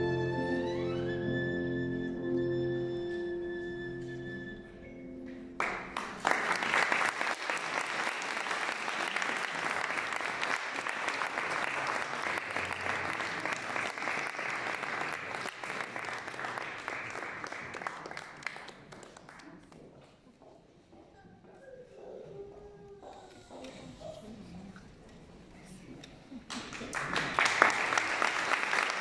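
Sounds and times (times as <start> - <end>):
audience applause: 5.6 - 19.6, 26.5 - 29.0.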